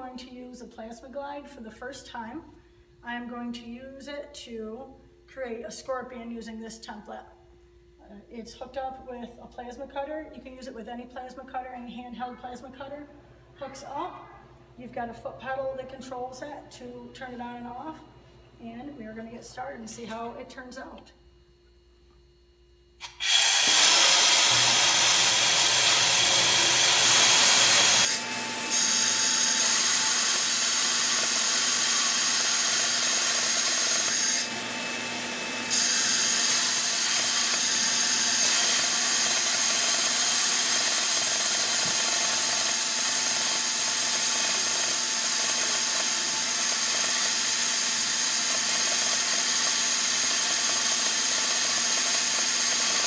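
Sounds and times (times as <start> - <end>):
plasma cutter hissing: 23.0 - 28.1.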